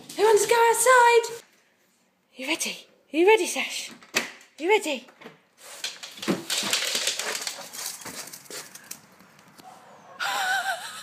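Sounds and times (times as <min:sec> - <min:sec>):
dog claws clattering on tiles: 0:05.8 - 0:09.0.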